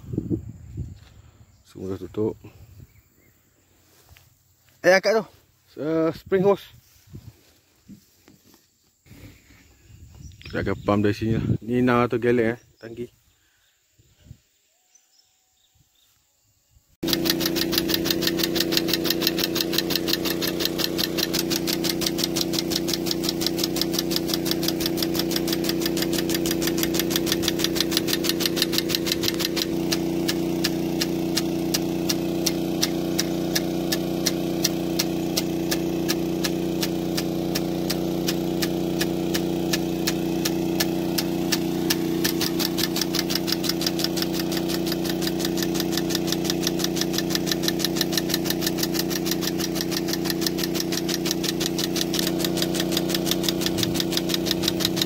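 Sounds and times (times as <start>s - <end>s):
sprinkler fast ticking: 17.0s - 55.0s
water pump humming: 17.0s - 55.0s
spraying water jet hiss: 17.1s - 55.0s.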